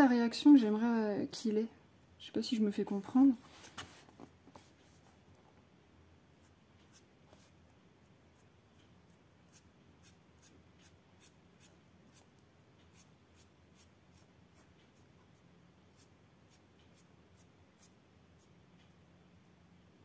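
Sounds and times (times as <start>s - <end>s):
low steady hum: 0.0s - 20.0s
marker scratching on paper: 9.5s - 12.3s, 12.9s - 18.5s.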